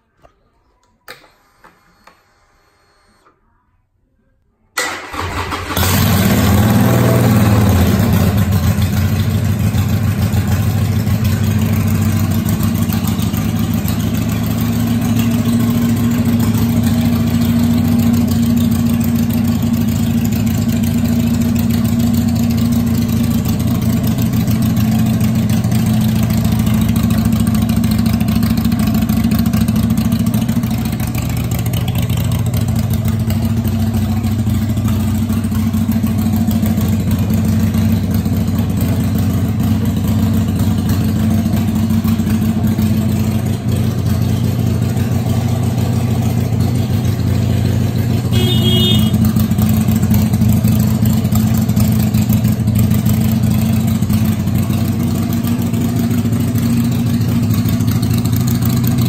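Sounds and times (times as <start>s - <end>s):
faint ignition whir: 0.2s - 3.6s
electric starter cranking: 4.8s - 6.5s
motorcycle engine revving and idling: 5.1s - 59.0s.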